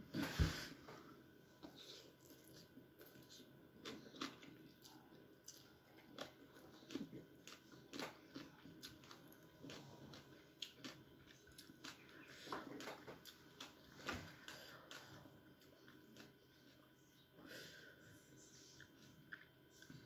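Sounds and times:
person chewing and slurping: 0:01.7 - 0:16.8.

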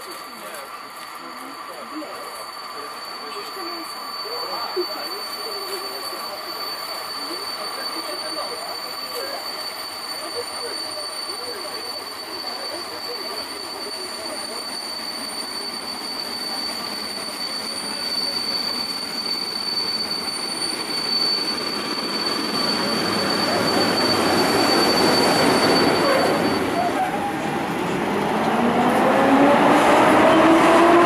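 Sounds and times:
electric locomotive rumbling: 0:00.0 - 0:31.0
high-pitched squeal: 0:00.1 - 0:31.0.

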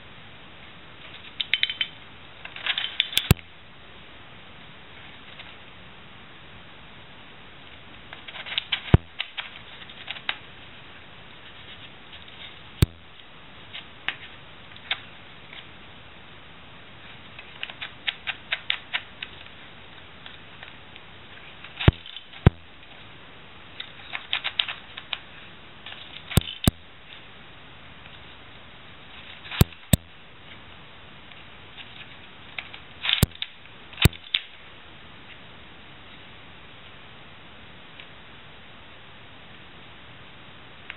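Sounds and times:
plastic puzzle clicking: 0:01.4 - 0:03.4.

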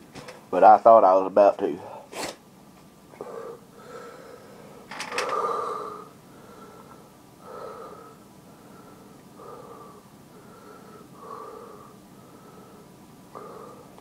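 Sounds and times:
man breathing hard: 0:03.2 - 0:14.0.

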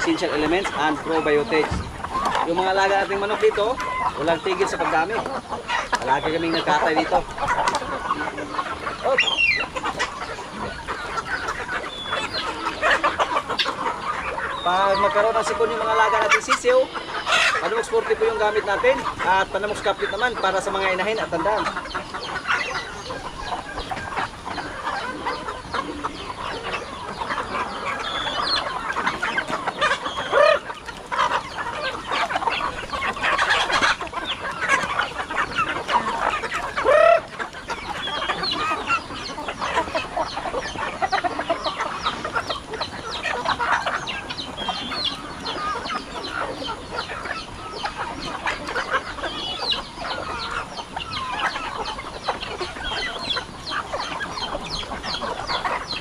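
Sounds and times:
chickens clucking and squawking: 0:00.0 - 0:56.0
loud chicken calls: 0:00.0 - 0:56.0.

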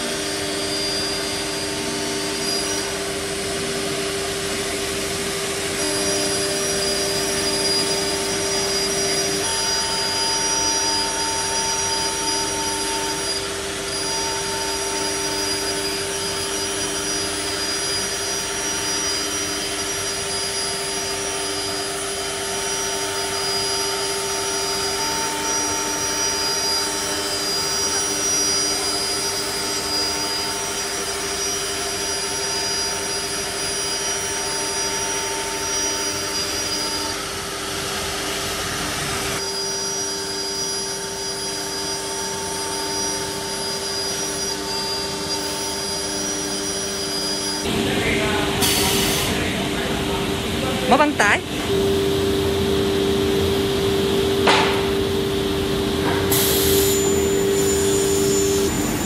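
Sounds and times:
router spindle whine: 0:00.0 - 0:59.0
hiss of cutting and dust extraction: 0:56.3 - 0:59.0.

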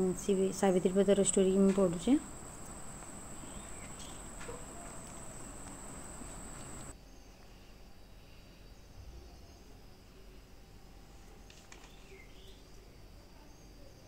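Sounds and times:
faint chirps: 0:02.2 - 0:10.3.

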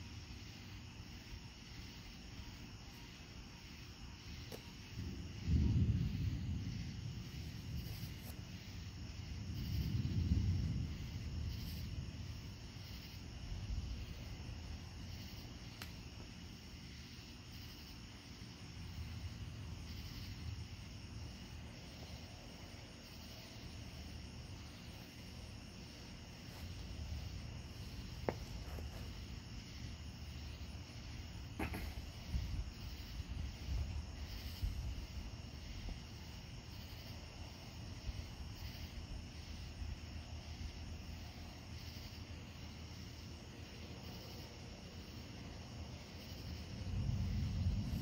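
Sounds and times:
crickets chirping: 0:00.0 - 0:48.0
distant thunder rumbling: 0:04.7 - 0:15.4, 0:18.3 - 0:40.2, 0:46.4 - 0:48.0.

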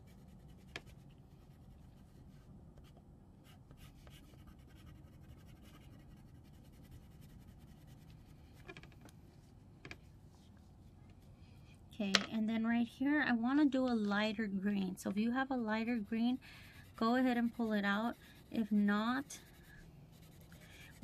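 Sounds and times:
crayon scratching on paper: 0:03.4 - 0:08.7, 0:15.1 - 0:21.0.

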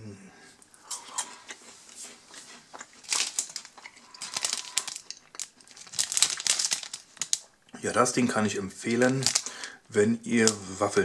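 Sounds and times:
plastic wrapper crinkling: 0:02.7 - 0:11.0.

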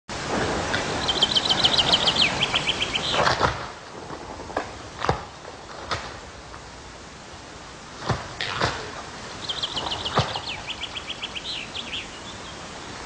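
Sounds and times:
songbird singing: 0:00.8 - 0:03.6, 0:08.4 - 0:13.0.

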